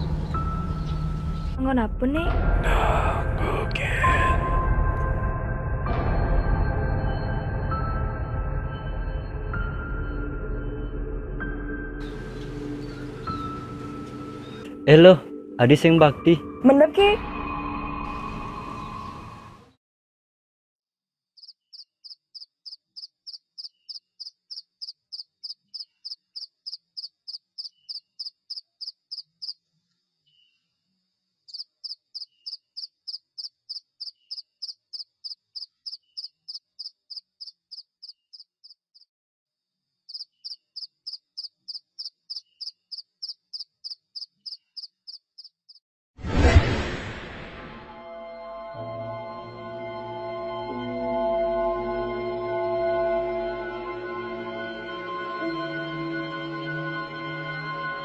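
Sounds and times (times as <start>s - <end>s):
rapid high-pitched animal chirping: 21.4s - 29.6s, 31.5s - 39.1s, 40.1s - 45.8s
sudden loud burst: 46.2s - 48.0s.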